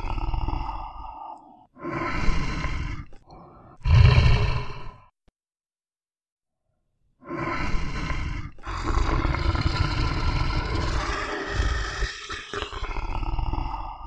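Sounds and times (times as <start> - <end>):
animal roars: 3.8 - 5.0, 7.4 - 14.0.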